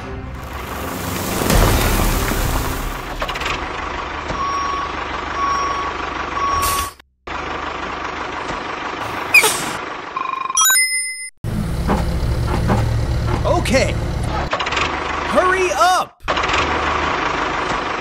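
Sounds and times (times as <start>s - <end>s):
truck engine running: 0.0s - 10.2s, 11.4s - 15.6s, 16.2s - 18.0s
reversing beeper beeping: 4.4s - 6.8s.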